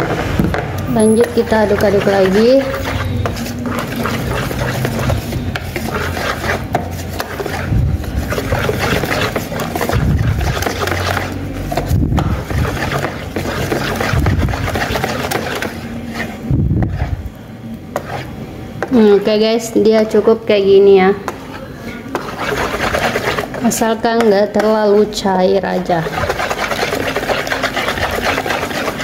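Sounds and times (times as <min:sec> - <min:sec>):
wire whisk scraping pot: 0:00.0 - 0:17.2, 0:21.5 - 0:29.0.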